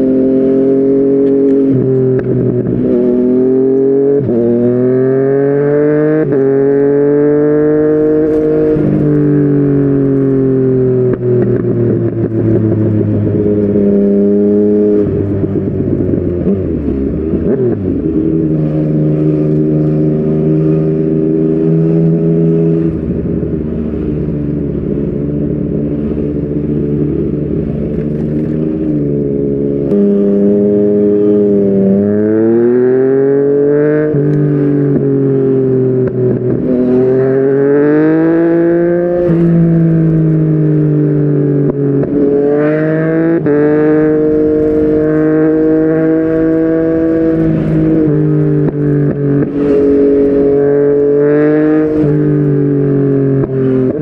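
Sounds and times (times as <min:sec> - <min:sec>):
motorcycle engine exhaust note: 0:00.0 - 0:54.0.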